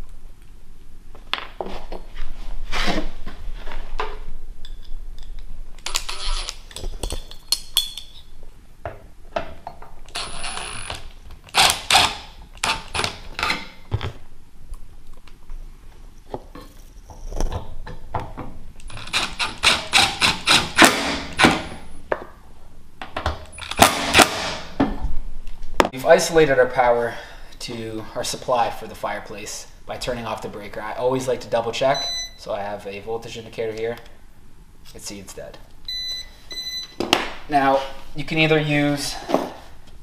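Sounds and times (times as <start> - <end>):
impact driver hammering: 19.3 - 21.8, 23.7 - 24.7.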